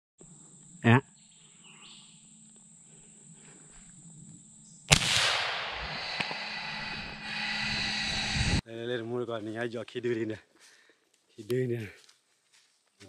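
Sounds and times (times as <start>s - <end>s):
faint outdoor background: 0.2s - 13.0s
gunshot: 4.9s - 7.3s
loud steady noise: 4.9s - 8.6s.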